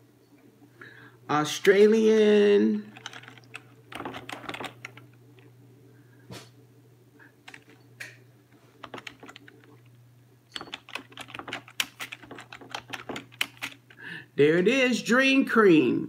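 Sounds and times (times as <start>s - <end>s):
steady low hum: 0.0s - 15.1s
keyboard typing: 2.9s - 5.5s, 7.4s - 8.2s, 8.8s - 14.1s.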